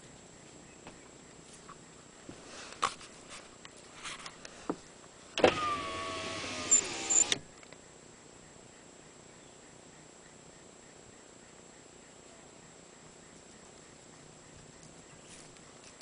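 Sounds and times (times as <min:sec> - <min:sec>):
power window motor whine: 0:05.4 - 0:07.5.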